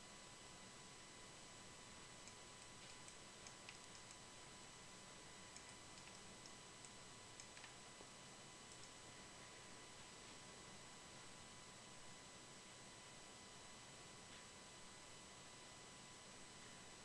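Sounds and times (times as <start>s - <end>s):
faint recording hiss and hum: 0.0s - 17.0s
computer mouse clicks: 2.2s - 4.2s, 5.5s - 7.8s, 8.7s - 9.0s.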